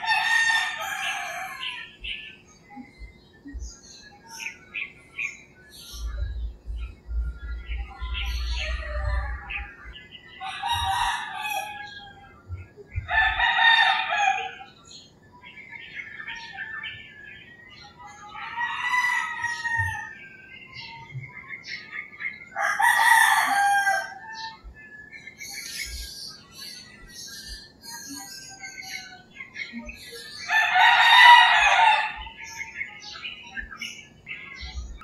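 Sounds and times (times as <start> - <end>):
roosters crowing: 0.0 - 2.4, 7.5 - 14.8, 18.1 - 20.9, 22.5 - 24.8, 30.4 - 34.0
small birds chirping: 0.0 - 35.0.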